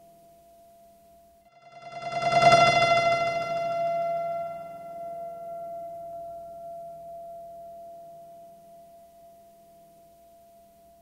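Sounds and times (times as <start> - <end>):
steady electronic ringing tone: 1.5 - 9.4
faint higher overtone: 1.5 - 11.0.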